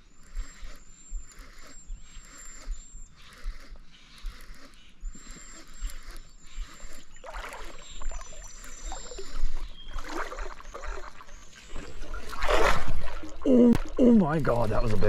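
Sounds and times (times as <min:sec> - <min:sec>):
water swishing: 0:06.0 - 0:15.0
fish splashing in water: 0:07.2 - 0:15.0.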